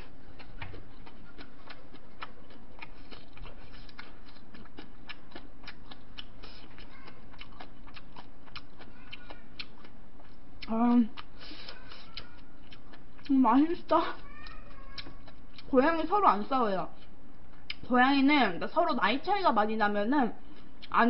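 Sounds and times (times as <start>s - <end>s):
close-miked chewing: 0.0s - 19.3s, 20.5s - 21.0s.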